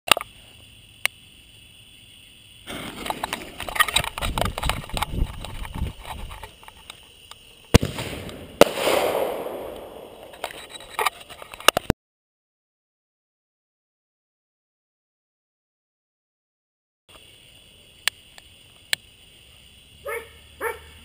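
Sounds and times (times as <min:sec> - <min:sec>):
firework crackling and sputtering: 0:02.7 - 0:07.0, 0:07.7 - 0:11.9
firework shell bangs: 0:07.7 - 0:10.5.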